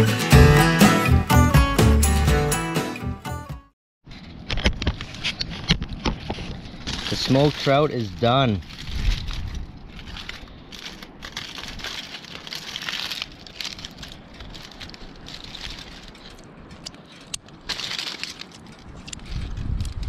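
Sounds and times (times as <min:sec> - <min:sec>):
aluminium foil crinkling: 0:05.0 - 0:20.0.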